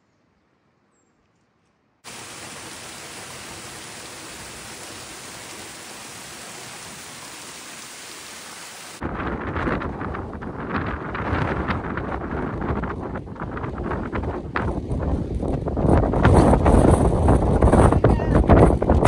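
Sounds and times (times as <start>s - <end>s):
waterfall rushing water: 2.1s - 9.0s
wind buffeting microphone: 9.0s - 19.0s.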